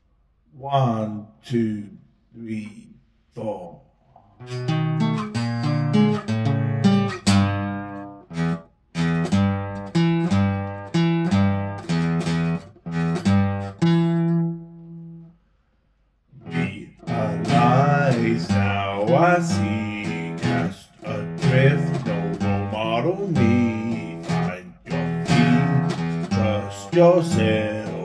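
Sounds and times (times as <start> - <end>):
acoustic guitar playing: 4.3 - 15.5, 16.4 - 28.0
man singing: 16.4 - 28.0.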